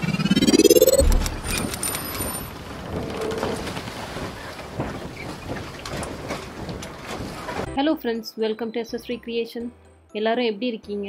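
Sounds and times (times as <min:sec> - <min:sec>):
rising whoosh: 0:00.0 - 0:02.0
deep boom: 0:00.5 - 0:01.8.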